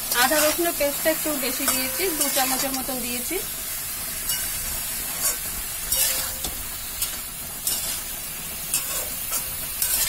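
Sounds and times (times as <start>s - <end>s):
spatula scraping pan: 0.0s - 0.8s, 4.3s - 10.0s
vegetables sizzling in oil: 0.0s - 10.0s.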